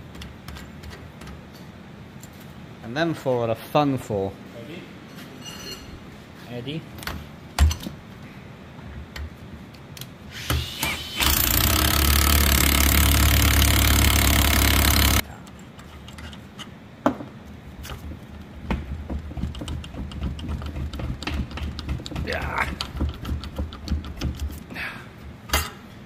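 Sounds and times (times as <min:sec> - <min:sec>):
motor running loudly: 0:11.2 - 0:15.2.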